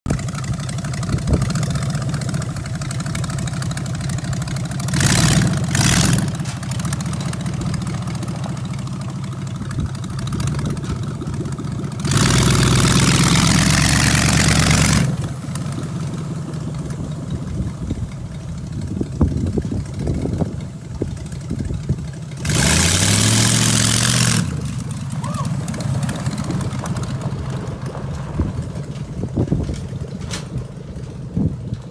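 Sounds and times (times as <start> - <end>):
truck engine running: 0.1 - 31.9
engine throttle bursts: 9.7 - 16.2, 21.7 - 27.5.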